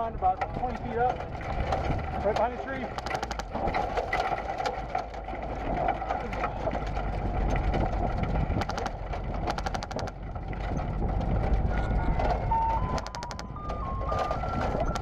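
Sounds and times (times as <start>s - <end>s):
vehicle driving: 0.0s - 15.0s
rapid airsoft gunfire: 8.6s - 10.1s
ice cream truck jingle: 11.6s - 15.0s.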